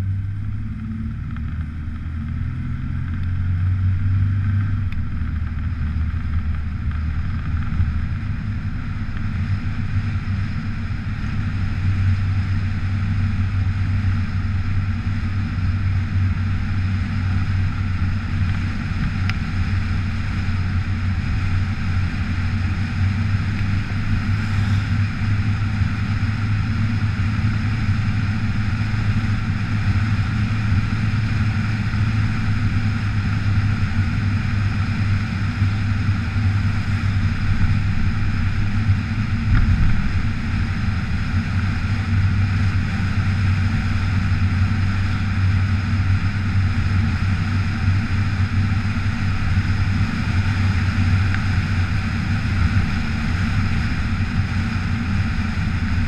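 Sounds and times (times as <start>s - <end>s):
vehicle engine hum: 0.0s - 56.0s
wind on microphone: 36.4s - 43.3s.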